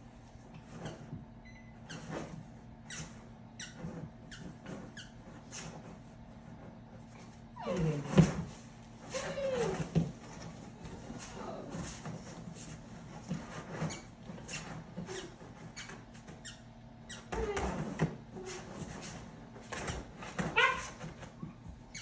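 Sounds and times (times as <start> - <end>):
puppy scraping cardboard box: 1.9 - 16.5, 17.4 - 22.0
puppy squeaks: 20.5 - 21.0.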